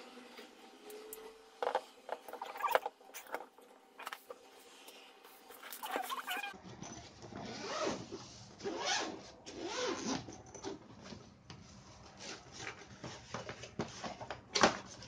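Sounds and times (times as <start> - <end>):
zipper rasping open: 2.3 - 3.4, 5.6 - 6.6, 7.4 - 10.3.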